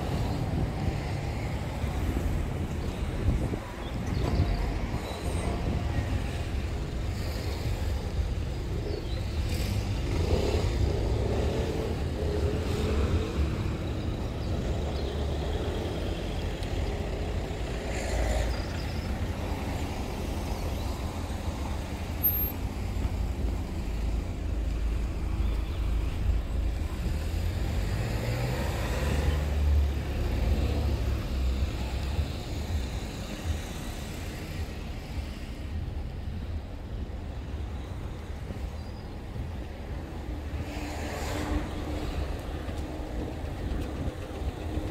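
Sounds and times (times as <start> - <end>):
cars idling in traffic: 0.0 - 40.7, 41.4 - 44.9.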